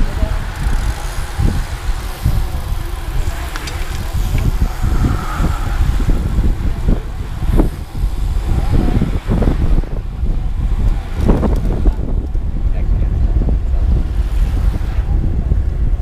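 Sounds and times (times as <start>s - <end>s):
tyre and road rumble: 0.0s - 16.0s
wind buffeting microphone: 0.0s - 16.0s.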